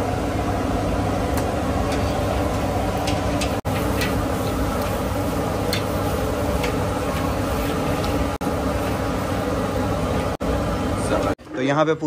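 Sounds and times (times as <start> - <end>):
gas burner roar: 0.0 - 11.6
food sizzling in hot oil: 1.6 - 10.4.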